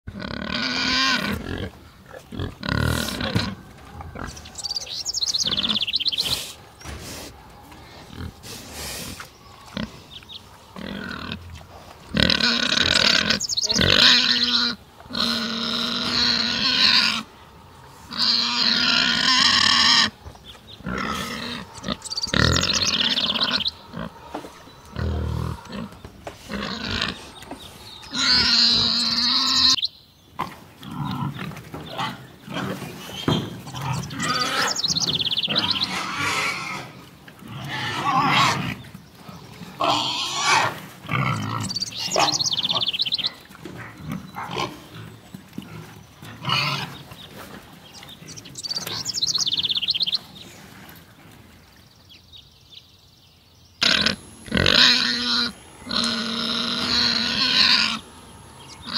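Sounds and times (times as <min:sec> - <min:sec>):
pigs grunting: 0:00.1 - 0:29.8, 0:30.4 - 0:49.2, 0:53.8 - 0:58.9
pigs squealing: 0:00.2 - 0:06.6, 0:12.1 - 0:17.4, 0:18.0 - 0:20.2, 0:20.8 - 0:29.8, 0:32.0 - 0:38.8, 0:39.8 - 0:43.4, 0:53.8 - 0:58.9.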